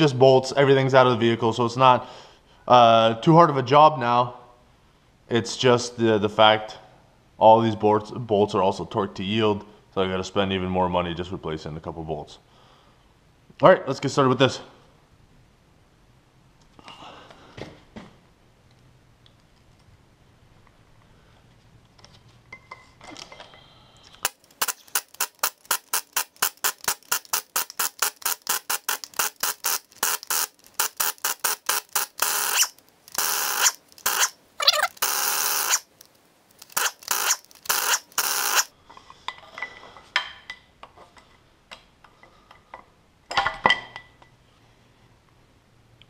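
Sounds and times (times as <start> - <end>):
air impact wrench hammering: 24.2 - 34.3, 36.6 - 38.7.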